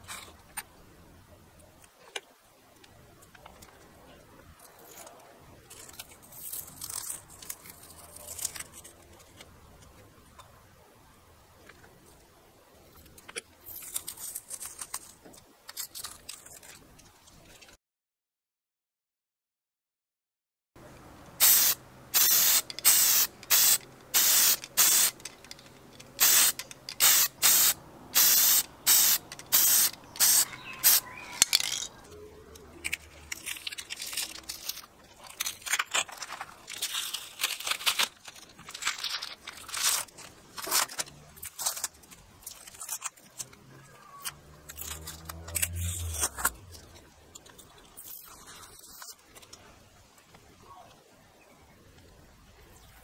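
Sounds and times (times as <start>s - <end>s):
spray paint can hissing: 21.4s - 25.3s, 26.2s - 31.0s
masking tape peeling off: 44.4s - 47.0s.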